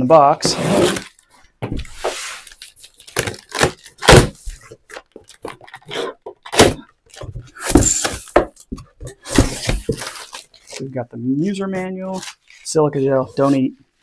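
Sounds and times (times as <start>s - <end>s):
cardboard box scrapes and rustles: 0.4s - 1.1s.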